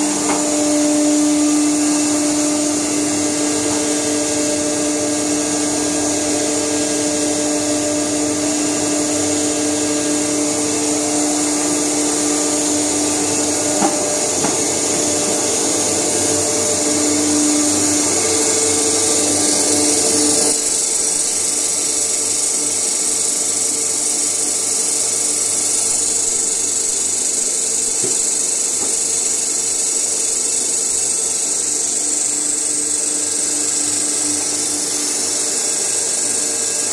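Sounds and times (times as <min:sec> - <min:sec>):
machine hum: 0:00.0 - 0:36.9.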